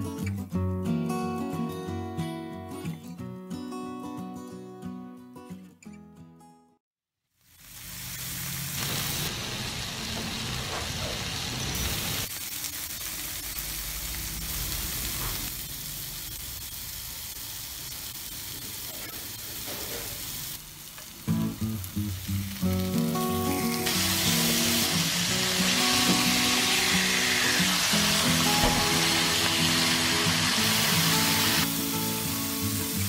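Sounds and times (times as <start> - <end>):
music: 0.0 - 6.8, 21.2 - 33.0
fish sizzling in oil: 7.3 - 33.0.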